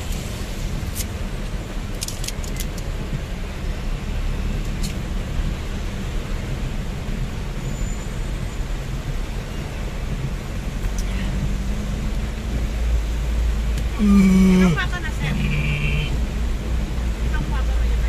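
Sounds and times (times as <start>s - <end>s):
vehicle engine and road rumble: 0.0s - 18.0s
heavy rain on windscreen: 8.5s - 18.0s.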